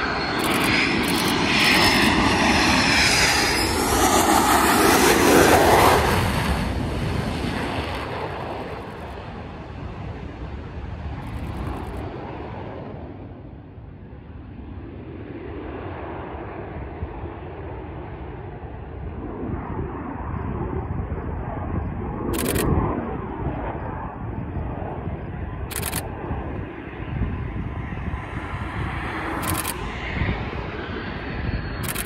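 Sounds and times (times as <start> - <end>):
jet engine rumble: 0.0 - 32.0
camera shutter clicks: 0.4 - 1.8, 22.4 - 22.7, 25.7 - 26.1, 29.4 - 29.8.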